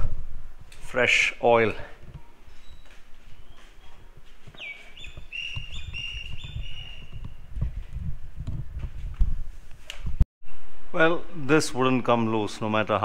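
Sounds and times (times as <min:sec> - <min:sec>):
bird chirping: 0:02.2 - 0:07.5
bird falling whistle: 0:04.6 - 0:07.2.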